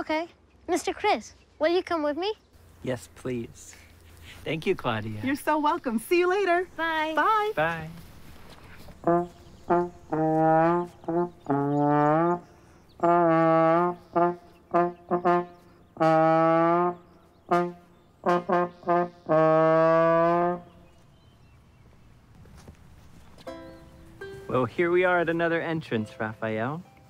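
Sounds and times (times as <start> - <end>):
trombone playing tune: 9.0 - 20.7.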